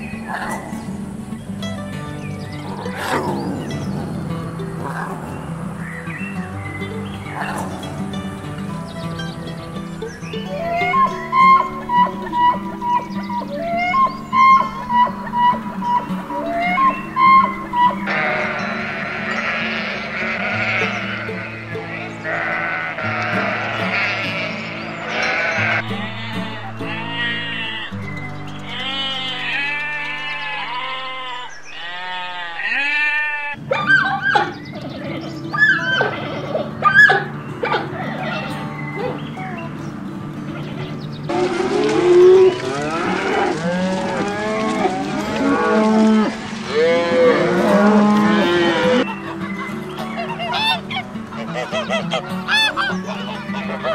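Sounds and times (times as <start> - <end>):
background music with low notes: 0.0 - 53.9
cows mooing: 2.7 - 5.6, 10.6 - 33.6, 41.3 - 49.2
sheep bleating: 10.6 - 33.6, 35.0 - 36.8, 41.6 - 49.1.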